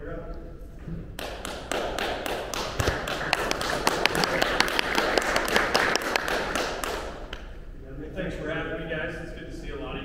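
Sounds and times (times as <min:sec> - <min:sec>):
audience applause: 0:01.2 - 0:07.5.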